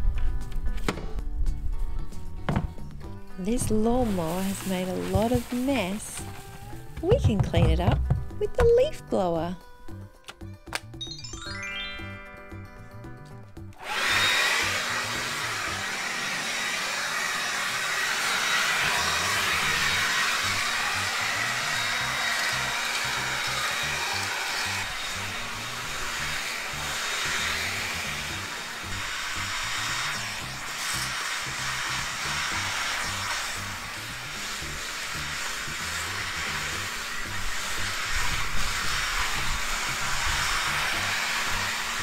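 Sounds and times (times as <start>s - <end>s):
leaf blower running: 3.5s - 8.3s, 13.5s - 42.0s.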